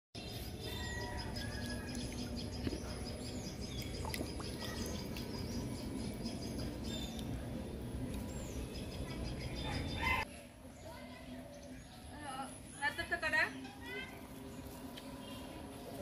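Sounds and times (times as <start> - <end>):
birds chirping: 0.2 - 16.0
steady background noise: 0.2 - 16.0.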